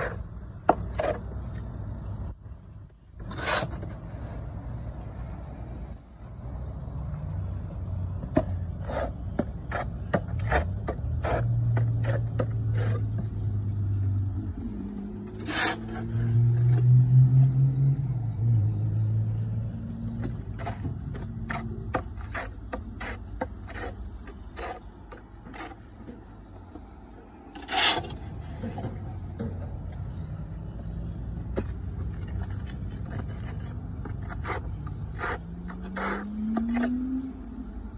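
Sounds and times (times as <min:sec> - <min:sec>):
tools scraping loose dirt: 0:03.2 - 0:04.2, 0:08.2 - 0:13.7, 0:15.2 - 0:16.8, 0:20.2 - 0:26.3, 0:27.5 - 0:29.5, 0:31.4 - 0:37.1.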